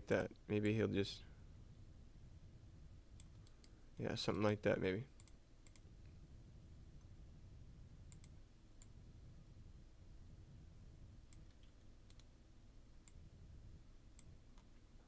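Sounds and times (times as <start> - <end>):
low steady hum: 0.0 - 15.0
computer mouse and key clicks: 3.1 - 3.8, 5.2 - 6.2, 8.1 - 9.0, 11.3 - 12.3, 13.0 - 13.3, 14.1 - 14.7.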